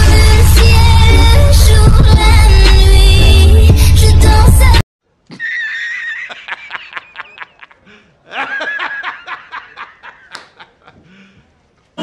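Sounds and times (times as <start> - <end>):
man laughing hard: 5.3 - 11.1.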